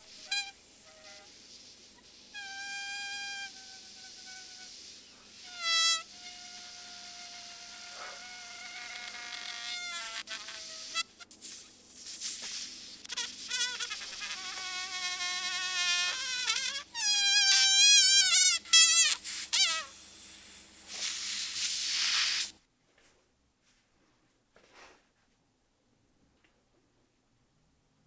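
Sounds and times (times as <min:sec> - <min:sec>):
air squealing out of inflatable: 0:16.0 - 0:20.0.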